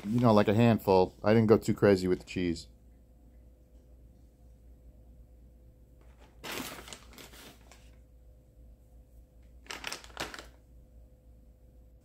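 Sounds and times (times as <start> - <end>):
plastic bag crinkling: 0.0 - 0.8, 6.0 - 8.0, 9.5 - 10.6
faint steady hum: 0.0 - 12.0.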